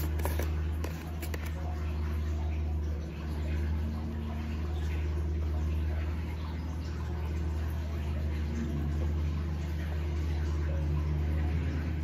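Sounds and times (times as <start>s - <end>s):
powder rattling in plastic container: 0.0s - 1.5s
low mechanical hum: 0.0s - 12.0s.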